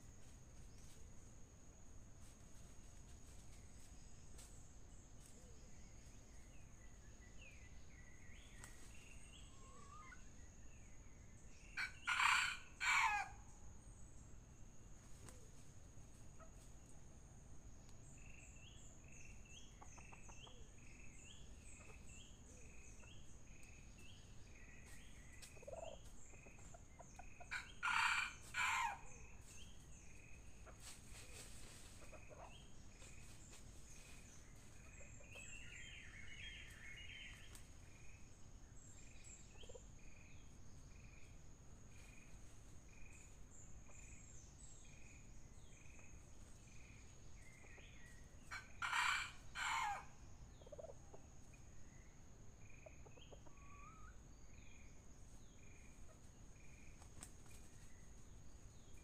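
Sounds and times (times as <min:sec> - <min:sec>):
rooster crowing: 0:11.8 - 0:13.4, 0:27.5 - 0:29.1, 0:48.6 - 0:50.1.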